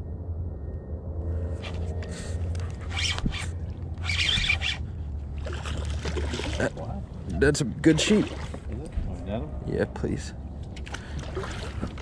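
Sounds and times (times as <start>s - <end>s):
steady low hum: 0.0s - 12.0s
fishing reel and drag rasping: 1.6s - 5.0s
fish splashing: 5.4s - 6.8s.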